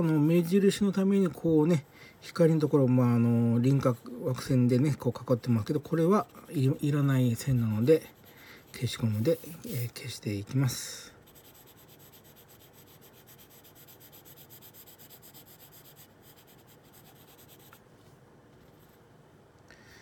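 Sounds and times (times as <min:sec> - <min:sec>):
pencil shading on paper: 0:05.6 - 0:10.0, 0:11.2 - 0:17.8.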